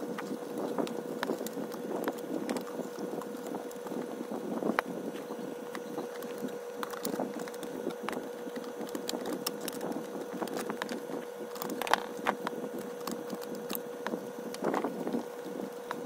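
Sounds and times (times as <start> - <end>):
faint steady hum: 0.0 - 16.0
hands clicking and tapping plastic: 5.7 - 14.9.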